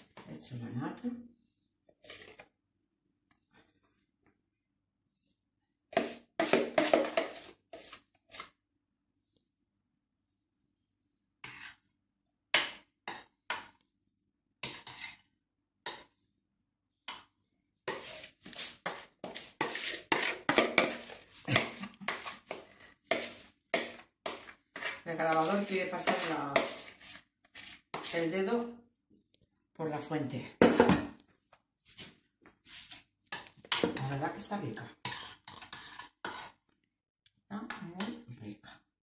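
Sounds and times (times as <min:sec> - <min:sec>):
spoon scraping a plastic bowl: 0:01.8 - 0:02.6, 0:05.9 - 0:08.6, 0:11.4 - 0:11.9, 0:14.6 - 0:16.2, 0:17.0 - 0:28.7, 0:31.9 - 0:36.8.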